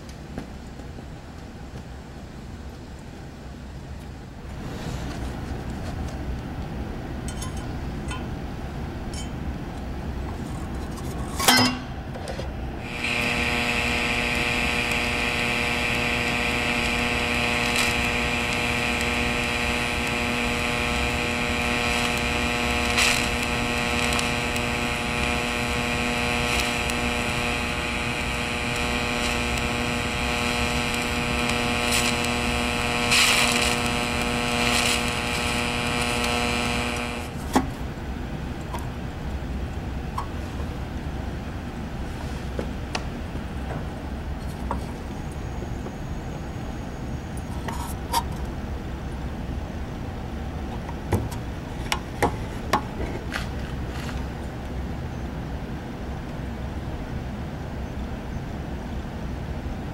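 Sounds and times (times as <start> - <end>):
welding arc crack: 12.8 - 37.9
welding arc buzzing over hiss: 12.8 - 46.1
brief arc crackles: 12.9 - 37.6.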